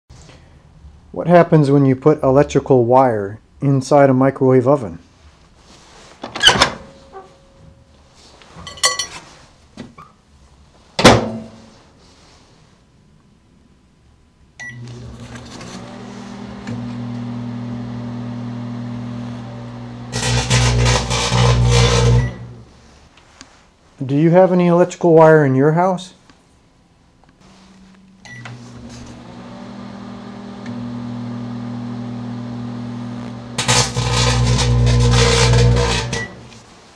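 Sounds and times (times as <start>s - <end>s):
microwave clunks and knocks: 11.0s - 11.4s
microwave keypad beeps: 14.6s - 14.8s, 28.3s - 28.5s
microwave oven humming: 14.6s - 22.6s, 27.6s - 36.6s
loud electrical arcing crackle: 20.1s - 22.6s, 33.2s - 36.6s.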